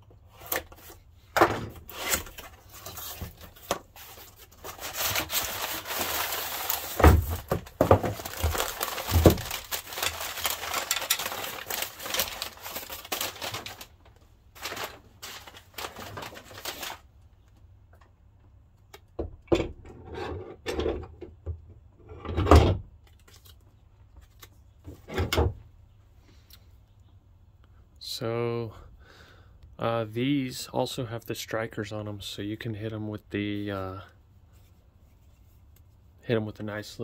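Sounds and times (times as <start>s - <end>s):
packing paper crinkling: 1.8s - 17.1s.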